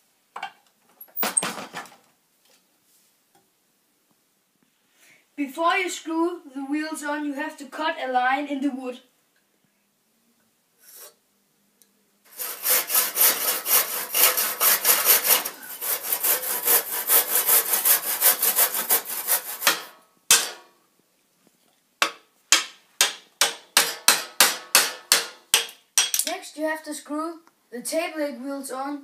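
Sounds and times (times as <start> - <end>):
handsaw cutting wood: 12.3 - 20.0
hammer striking chisel: 19.6 - 20.6, 22.0 - 26.3.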